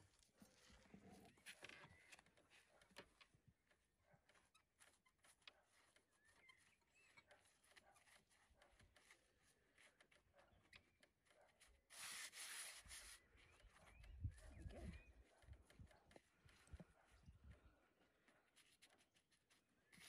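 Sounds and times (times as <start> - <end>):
gloved hands rustling soil: 0.0 - 2.4, 11.6 - 17.4.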